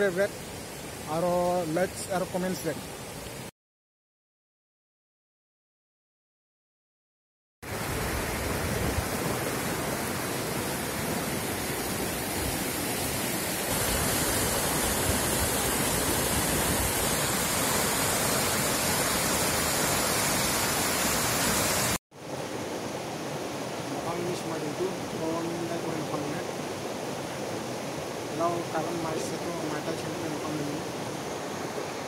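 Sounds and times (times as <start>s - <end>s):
water rushing over boulders: 7.7s - 32.0s.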